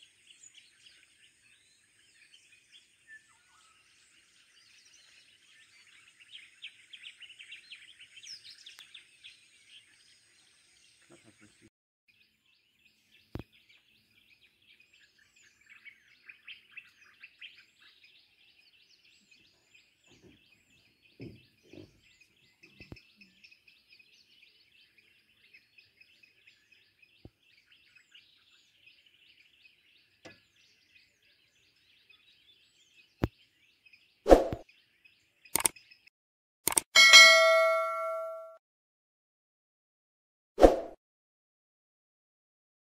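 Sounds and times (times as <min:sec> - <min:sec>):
small birds twittering: 0:00.0 - 0:36.1
short high bird call: 0:37.0 - 0:38.5.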